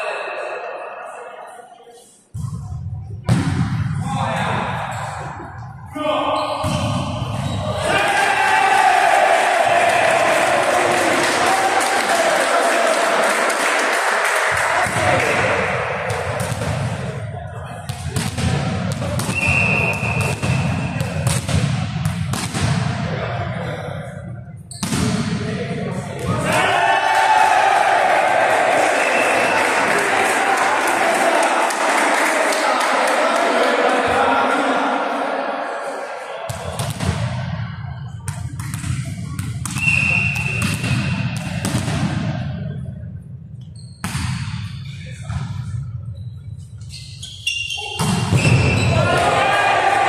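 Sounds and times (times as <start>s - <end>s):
low hall noise: 0.0s - 50.0s
volleyball bouncing on gym floor: 17.8s - 22.9s, 38.3s - 42.4s
referee's whistle blast: 19.2s - 21.0s, 39.7s - 41.4s, 47.4s - 49.0s.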